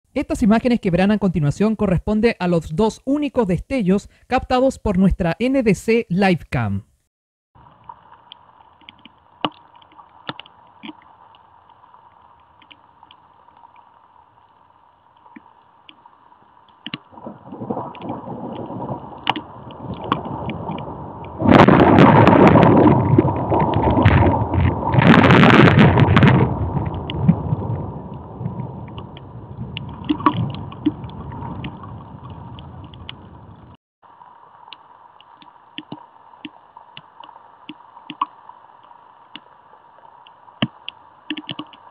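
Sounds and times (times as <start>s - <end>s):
raindrops ticking on camera: 7.6s - 41.9s
thunder rumbling: 17.1s - 33.8s.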